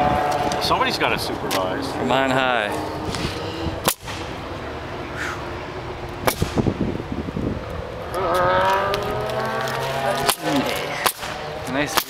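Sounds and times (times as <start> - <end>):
sharp bang: 6.2 - 6.8.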